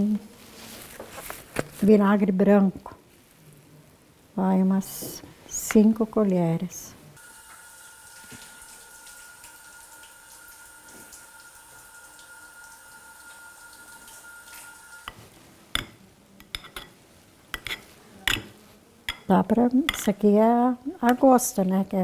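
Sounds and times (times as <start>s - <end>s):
faint steady hum: 0.0s - 22.0s
knife tapping glass plate: 15.0s - 17.0s, 17.6s - 19.3s.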